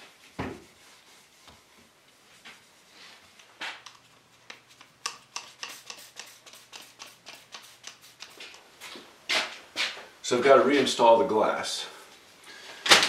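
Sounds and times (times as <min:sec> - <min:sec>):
spray bottle hissing: 0:04.8 - 0:08.6.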